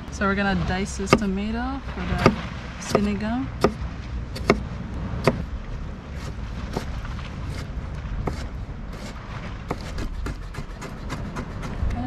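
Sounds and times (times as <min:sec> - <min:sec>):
low rumble: 0:00.0 - 0:12.0
knife chopping on cutting board: 0:04.4 - 0:04.6.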